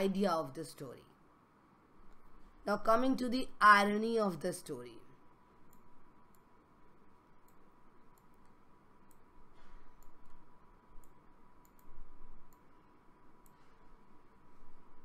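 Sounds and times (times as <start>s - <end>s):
faint sharp clicks: 11.0s - 12.7s.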